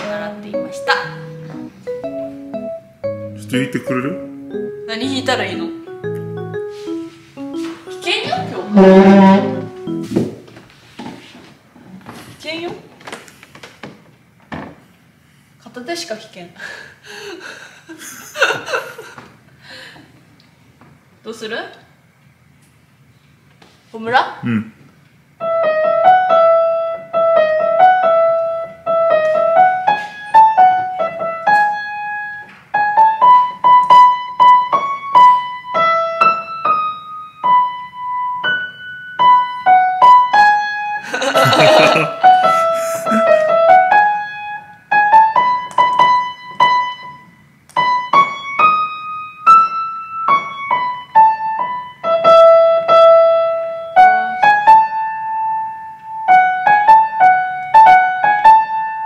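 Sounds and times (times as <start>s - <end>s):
upright piano melody: 0.0s - 10.7s, 25.4s - 59.0s.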